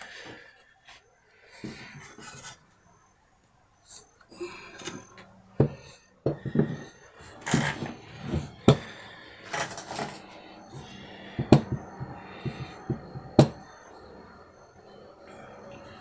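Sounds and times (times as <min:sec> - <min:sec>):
wood scraping and sliding: 0:05.6 - 0:11.8
wooden knocks: 0:10.8 - 0:13.6.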